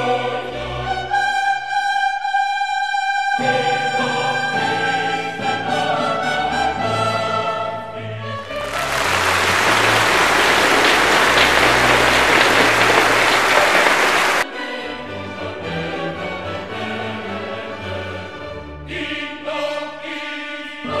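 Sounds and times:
orchestral music with choir: 0:00.0 - 0:21.0
loud applause: 0:08.4 - 0:14.5.

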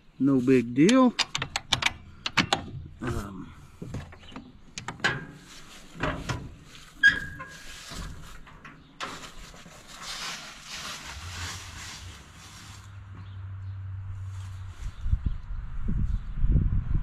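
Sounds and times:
metal clanks and rattles: 0:00.8 - 0:09.9
rustling hiss: 0:09.1 - 0:13.1.

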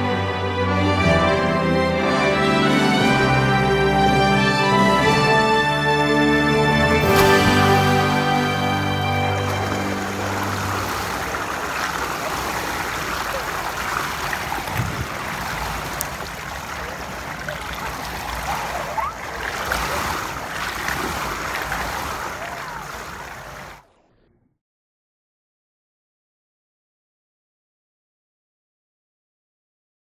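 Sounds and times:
pool water splashing: 0:00.0 - 0:24.0.

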